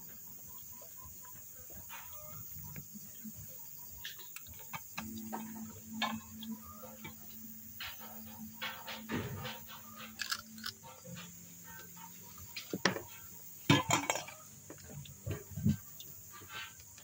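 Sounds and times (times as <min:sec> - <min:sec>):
raccoon crunching eggs: 0:07.8 - 0:13.3.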